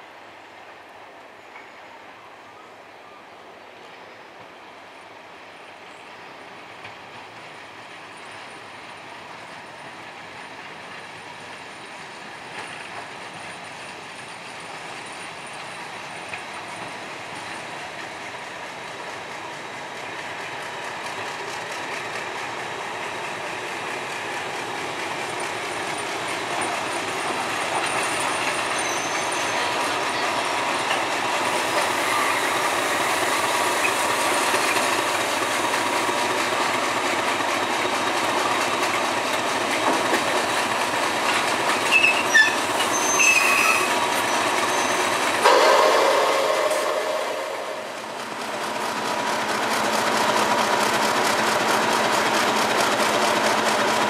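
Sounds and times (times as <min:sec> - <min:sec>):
diesel locomotives approaching: 0:00.0 - 0:54.0.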